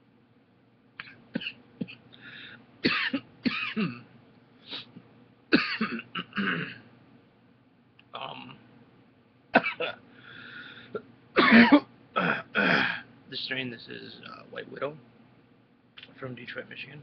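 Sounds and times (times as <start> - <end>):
wheezing breaths: 2.2 - 2.6, 10.1 - 11.0
man coughing: 2.8 - 4.1, 5.5 - 6.8, 9.6 - 10.0, 11.4 - 13.0.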